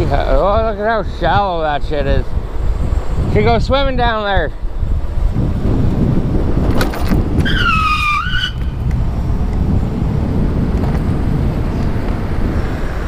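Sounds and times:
electric mountain bike rumble: 0:00.0 - 0:13.0
high squeal: 0:07.4 - 0:08.8.

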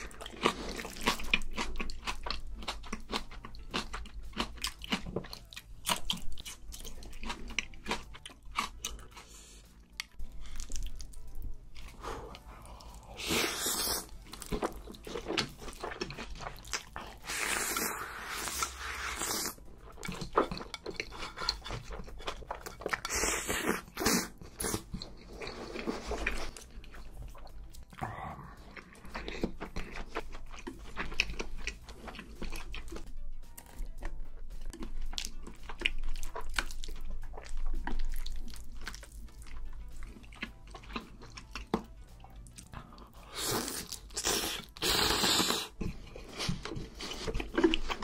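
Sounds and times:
wet chewing: 0:00.0 - 0:48.0
noodles slurped: 0:43.2 - 0:48.0.

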